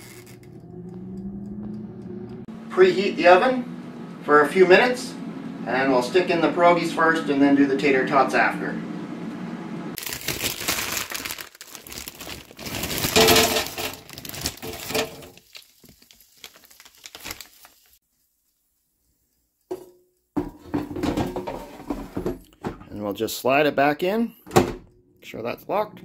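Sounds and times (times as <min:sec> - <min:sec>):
plastic bag crinkling: 0:10.0 - 0:18.0.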